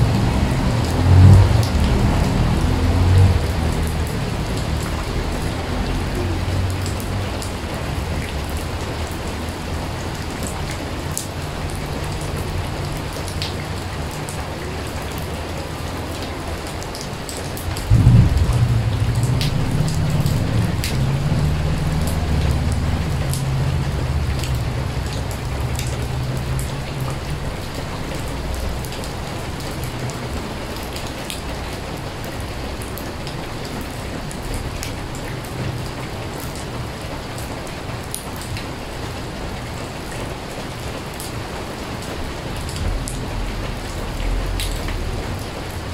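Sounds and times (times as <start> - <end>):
rain falling into puddle: 0.0 - 45.9
low rumble: 17.9 - 27.2.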